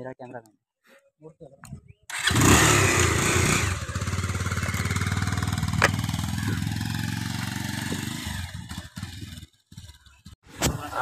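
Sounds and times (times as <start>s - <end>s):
motorcycle engine revving: 2.1s - 10.4s.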